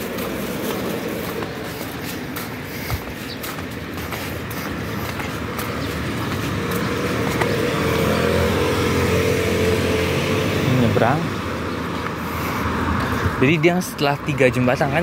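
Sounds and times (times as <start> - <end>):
car passing by: 4.4 - 13.7.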